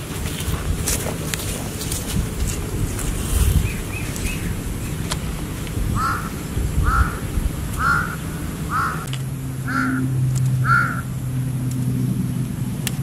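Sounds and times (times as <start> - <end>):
low steady hum: 0.0 - 13.0
crow cawing: 6.0 - 11.1.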